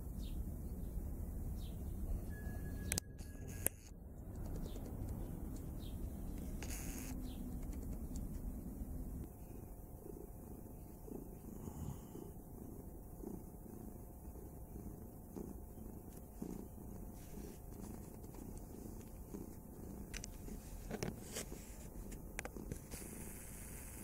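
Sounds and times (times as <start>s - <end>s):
sharp clicks: 2.9s - 5.7s, 6.3s - 8.5s
cat purring: 4.2s - 24.0s.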